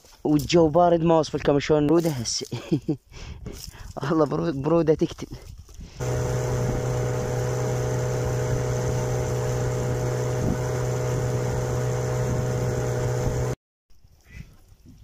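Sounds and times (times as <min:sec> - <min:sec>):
engine running steadily: 0:06.0 - 0:13.6.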